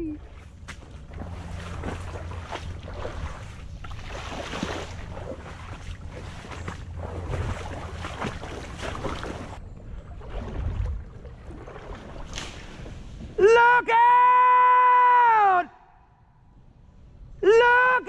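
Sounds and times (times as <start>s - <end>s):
footsteps wading through water: 0.0s - 13.4s.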